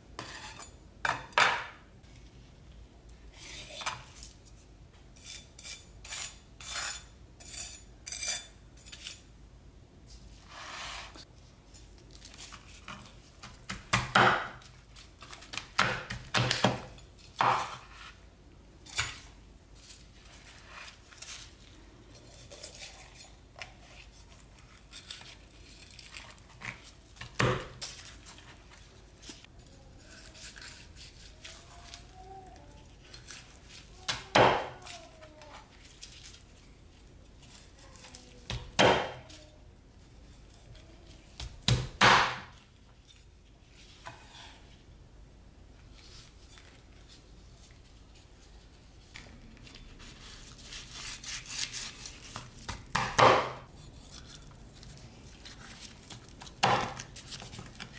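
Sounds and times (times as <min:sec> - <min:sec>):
cleaver chopping on wooden board: 0:52.9 - 0:53.6.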